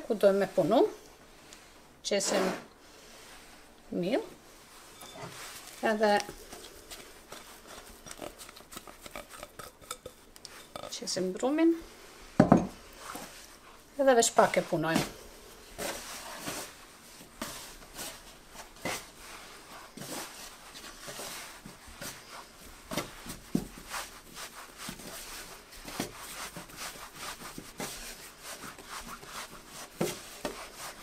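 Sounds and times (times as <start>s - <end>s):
hands kneading dough on wood: 5.3s - 11.9s, 12.9s - 31.0s.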